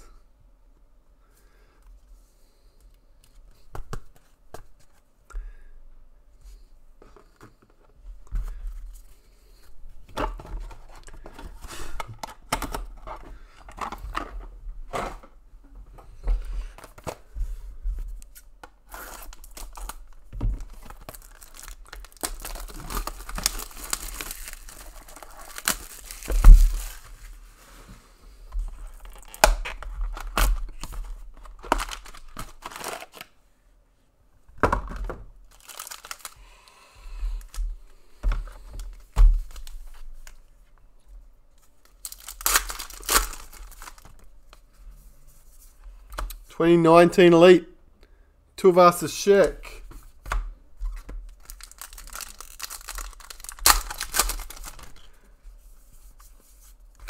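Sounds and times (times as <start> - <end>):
wrappers tearing and crinkling: 18.8 - 27.1, 28.9 - 33.3, 35.5 - 36.4, 41.8 - 44.2, 51.3 - 55.1.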